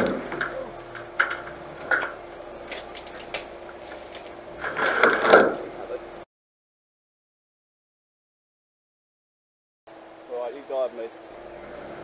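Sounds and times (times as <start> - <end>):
clicks and rattles: 0.0 - 5.6
off-road vehicle running: 0.0 - 6.2, 9.9 - 12.0.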